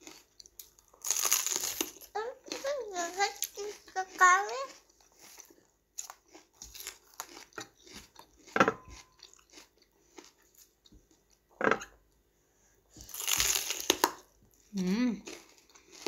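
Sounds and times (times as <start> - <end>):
crunchy chewing of raw gourd: 0.0 - 11.4, 13.0 - 14.6, 15.2 - 16.0.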